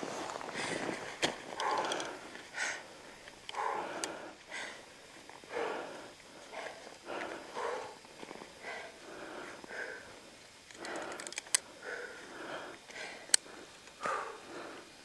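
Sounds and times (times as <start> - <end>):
person breathing hard: 0.0 - 15.0
carabiners clicking: 1.5 - 2.2, 10.6 - 11.7.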